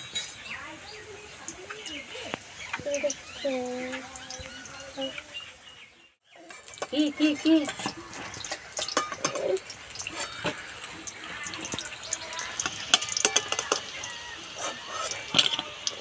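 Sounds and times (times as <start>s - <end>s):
food sizzling in hot oil: 0.1s - 5.6s, 6.2s - 16.0s
utensil clinking on steel: 7.6s - 10.5s.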